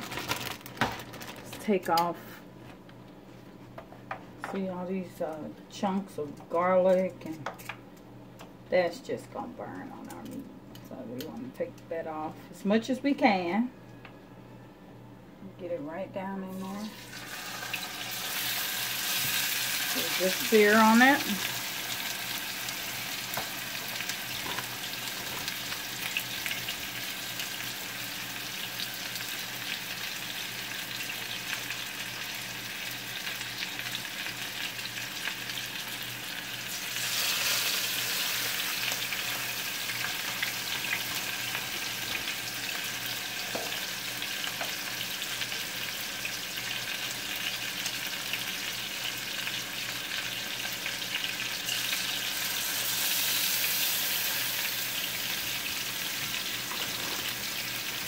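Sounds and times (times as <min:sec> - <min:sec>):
steaks sizzling in a frying pan: 0:16.9 - 0:58.0.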